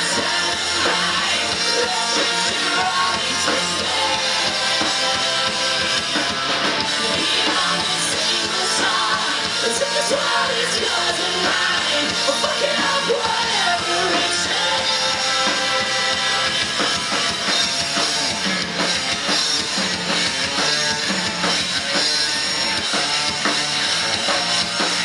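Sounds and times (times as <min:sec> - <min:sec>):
lead singer singing: 0:00.0 - 0:16.6
drums: 0:00.0 - 0:25.0
electric guitars: 0:00.0 - 0:25.0.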